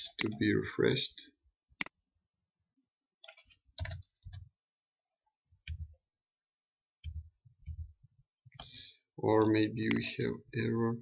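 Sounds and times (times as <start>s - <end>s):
keyboard and mouse clicks: 0.1s - 0.5s, 1.8s - 2.0s, 3.2s - 4.6s, 5.6s - 6.0s, 7.0s - 8.8s, 9.8s - 10.1s.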